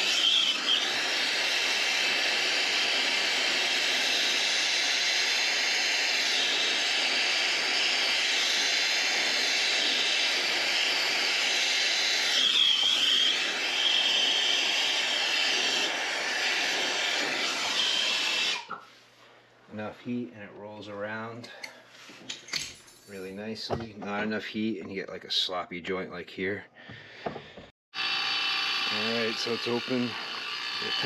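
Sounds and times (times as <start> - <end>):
high whistle from flame: 0.0 - 18.8
torch flame hissing: 0.0 - 18.8, 28.0 - 31.0.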